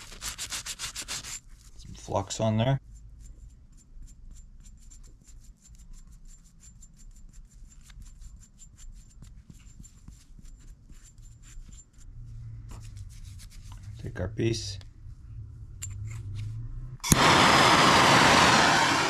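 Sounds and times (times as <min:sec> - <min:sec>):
brush scrubbing on metal: 0:00.0 - 0:01.9.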